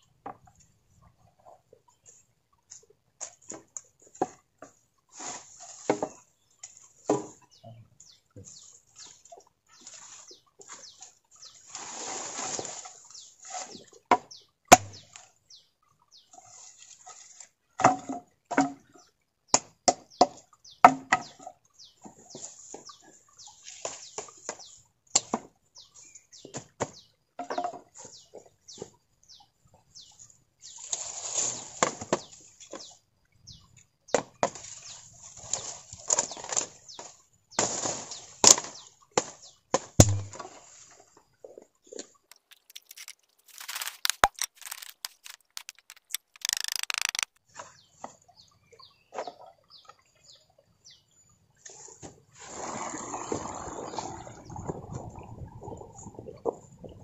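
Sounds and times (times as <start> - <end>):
leaves and grass rustling: 9.8 - 13.8, 30.8 - 32.4, 34.6 - 38.7, 42.3 - 47.4
dry sticks cracking and snapping: 42.3 - 47.4.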